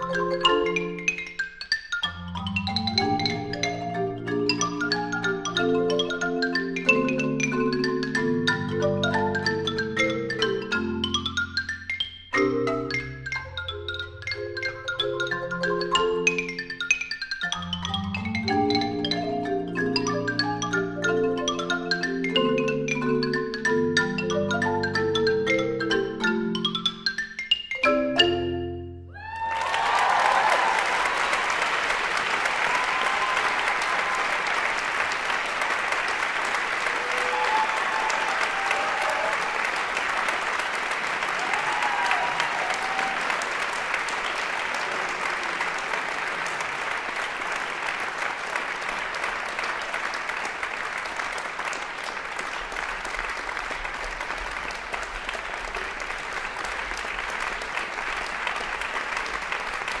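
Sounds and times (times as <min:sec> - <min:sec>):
audience applauding: 0:29.2 - 1:00.0.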